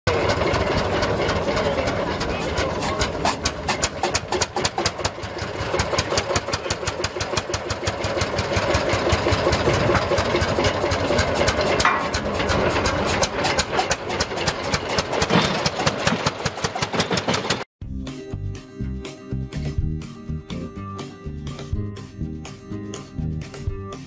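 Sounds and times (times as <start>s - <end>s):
two-stroke tractor engine running: 0.1s - 17.7s.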